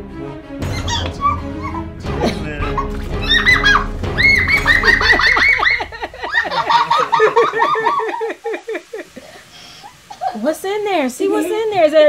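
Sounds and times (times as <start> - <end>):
children giggling: 0.6 - 9.2.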